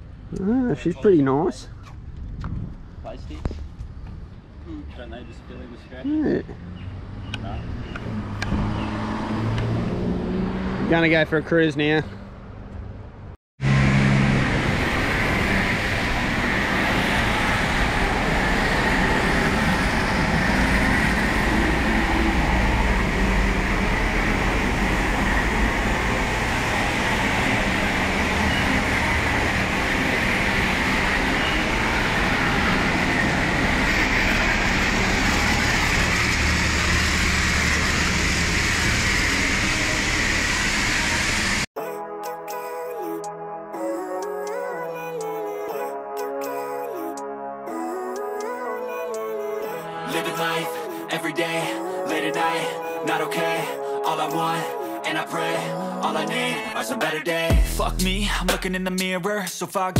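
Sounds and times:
low drone: 0:13.6 - 0:41.7.

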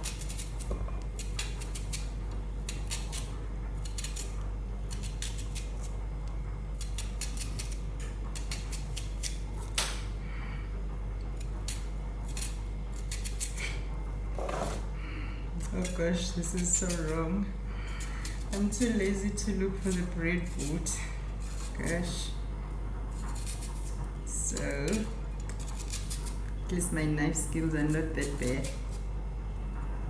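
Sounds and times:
knife slicing through onion: 0:00.0 - 0:06.0, 0:11.4 - 0:13.8, 0:23.1 - 0:26.4
steady low hum: 0:00.0 - 0:30.0.

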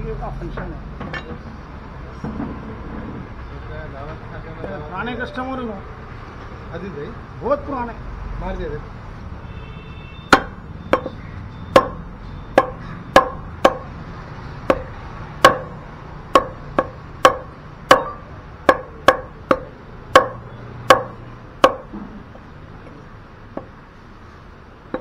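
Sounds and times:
cleaver chopping meat on wood: 0:10.3 - 0:11.1, 0:11.7 - 0:13.9, 0:14.6 - 0:21.9.

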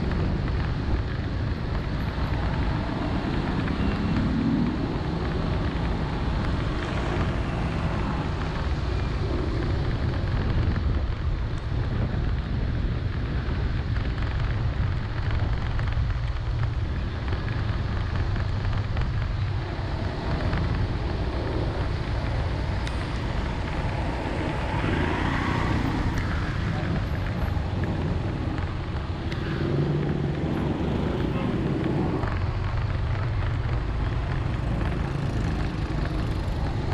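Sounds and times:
engine and road rumble: 0:00.0 - 0:36.9
rain and wet tyres hissing: 0:00.1 - 0:36.9.

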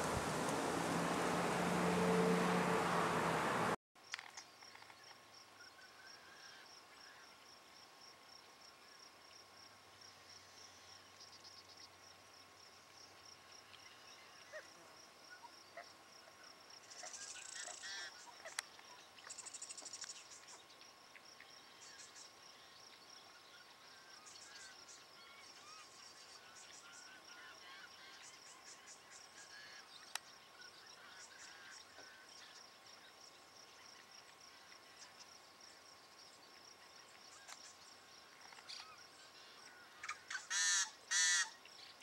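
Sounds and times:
loud rush of noise: 0:00.0 - 0:03.8
harsh buzzy blackbird calls: 0:40.0 - 0:41.6.

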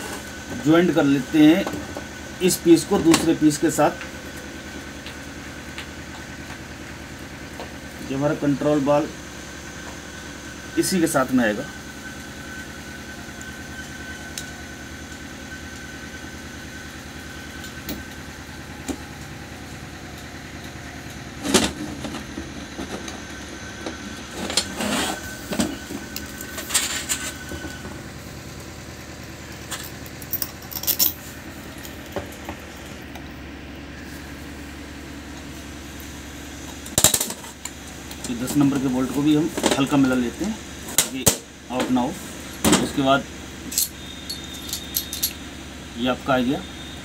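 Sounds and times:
steady mechanical hum: 0:00.0 - 0:47.0
steel parts clinking and knocking: 0:29.7 - 0:31.2, 0:43.7 - 0:45.4.

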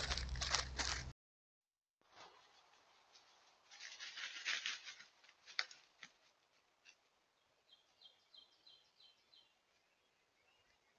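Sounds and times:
footsteps in dry leaves: 0:00.0 - 0:01.1, 0:02.1 - 0:06.9.

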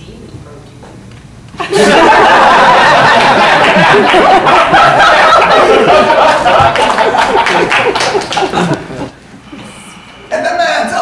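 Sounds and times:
audience laughing: 0:01.6 - 0:09.2.

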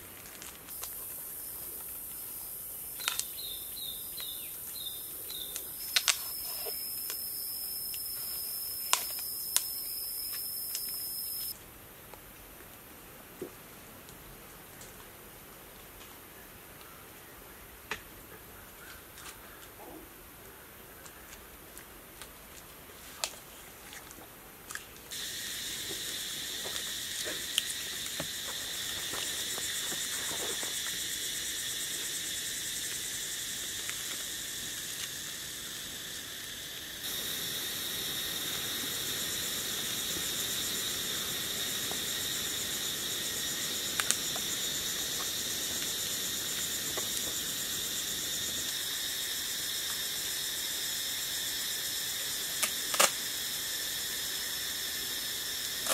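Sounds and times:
high-pitched insect chorus: 0:00.2 - 0:11.6, 0:25.1 - 0:55.9.

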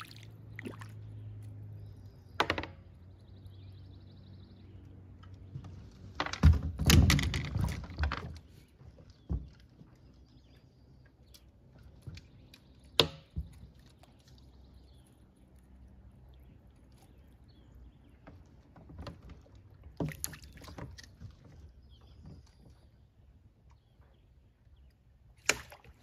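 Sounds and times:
knocks and clicks of fishing gear: 0:02.4 - 0:02.8, 0:05.2 - 0:10.0, 0:11.4 - 0:13.9.

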